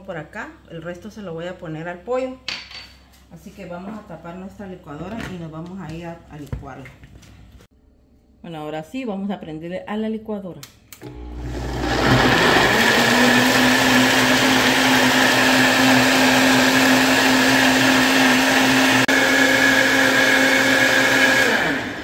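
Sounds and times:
blender whining: 0:11.0 - 0:22.0.

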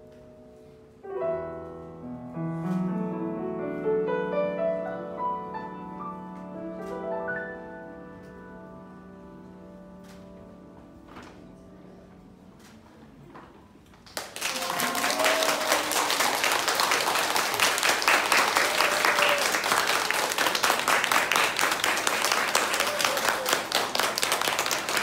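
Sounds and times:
audience clapping: 0:13.9 - 0:25.0.

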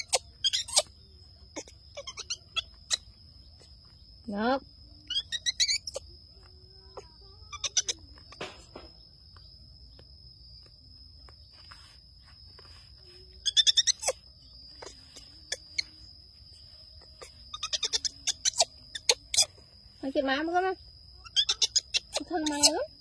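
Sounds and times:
monkey screeching: 0:00.0 - 0:03.2, 0:05.1 - 0:06.1, 0:07.0 - 0:08.0, 0:13.4 - 0:14.2, 0:17.2 - 0:19.6, 0:21.2 - 0:22.9.

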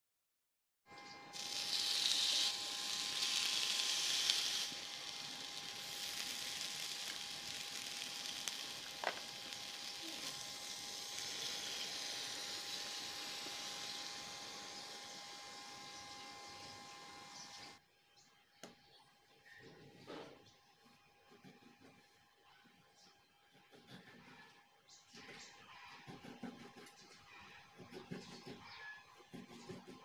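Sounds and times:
sizzling on a hot platter: 0:01.3 - 0:17.8.

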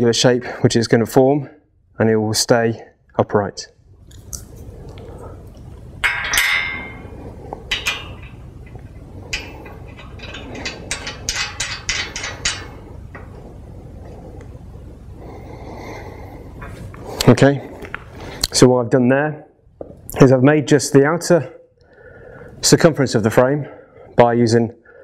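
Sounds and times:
ringing metal clink: 0:06.0 - 0:07.1.

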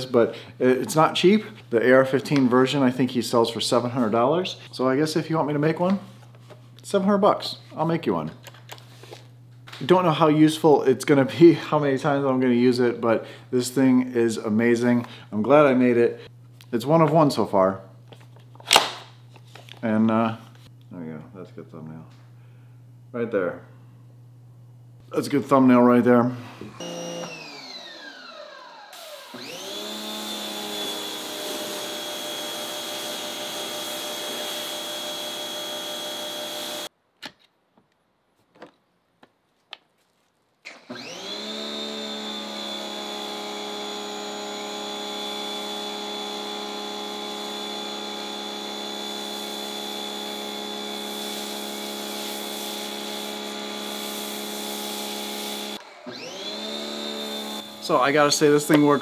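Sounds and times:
pressure washer running: 0:28.9 - 0:36.9, 0:40.9 - 0:59.0.

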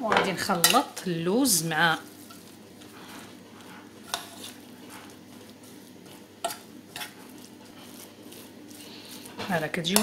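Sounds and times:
fork scraping thick mix in pot: 0:02.0 - 0:10.0.

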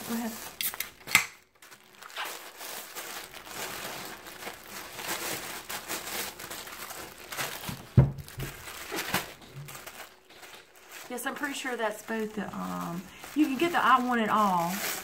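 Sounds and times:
packaging crinkling: 0:00.0 - 0:15.0.

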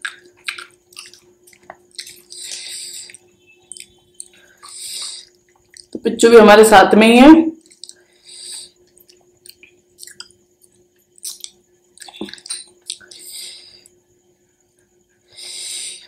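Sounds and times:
wet chewing and squishing: 0:00.0 - 0:02.5, 0:03.1 - 0:06.0, 0:07.6 - 0:08.0, 0:08.9 - 0:13.3.

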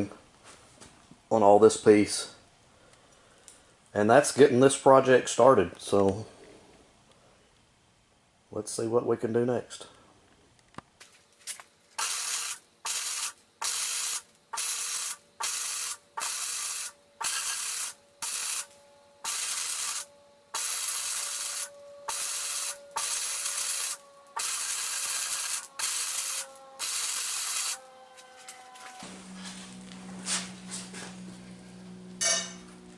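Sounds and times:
arc welder crackling hiss: 0:11.0 - 0:29.0.

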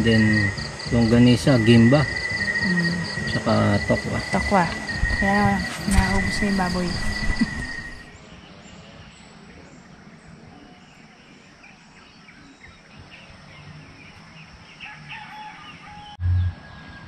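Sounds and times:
rooster crowing: 0:14.8 - 0:17.0.

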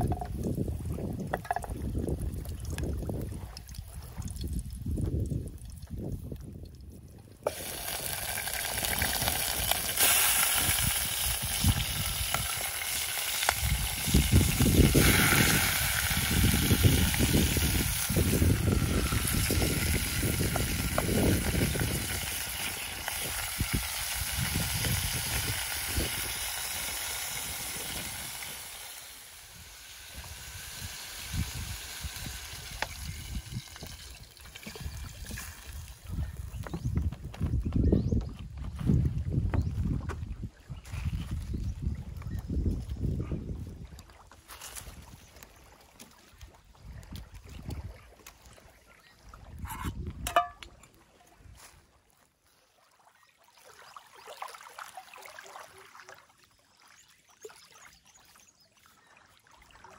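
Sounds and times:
meat sizzling in a pot: 0:07.5 - 0:34.1.

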